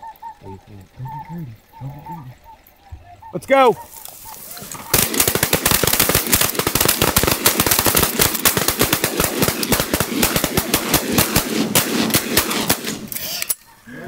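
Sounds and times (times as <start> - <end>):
shotguns firing rapidly: 4.9 - 13.1.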